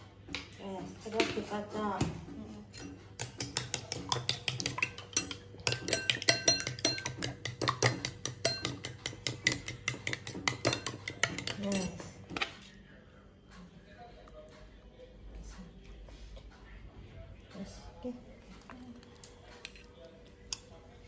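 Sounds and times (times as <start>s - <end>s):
spoon clinking against glass bowl: 2.8s - 12.6s.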